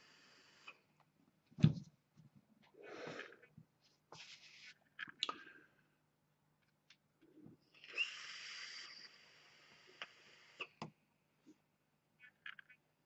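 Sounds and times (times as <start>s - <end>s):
breathy exhale: 2.8s - 3.5s.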